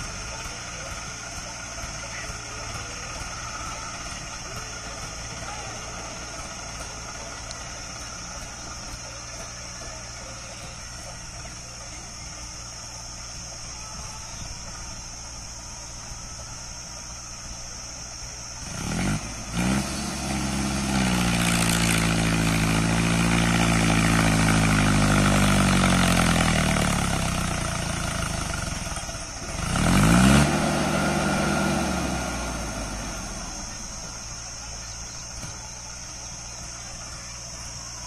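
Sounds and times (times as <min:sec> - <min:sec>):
tractor diesel engine labouring: 0:00.0 - 0:38.0.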